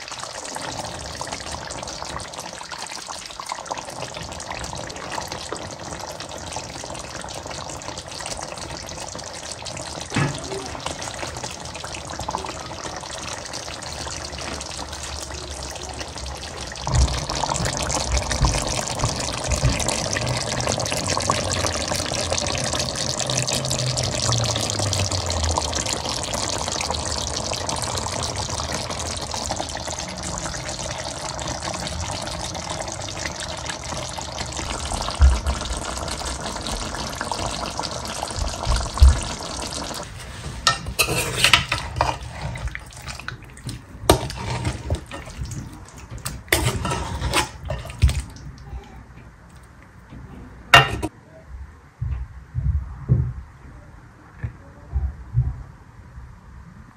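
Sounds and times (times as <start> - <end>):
sauce sizzling in a metal pan: 0.0 - 43.4, 44.1 - 48.2.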